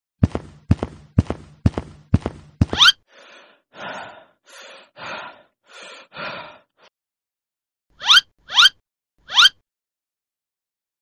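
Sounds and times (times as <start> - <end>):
heavy cartoon footsteps: 0.2 - 3.0
heavy breathy sighs: 3.1 - 6.9.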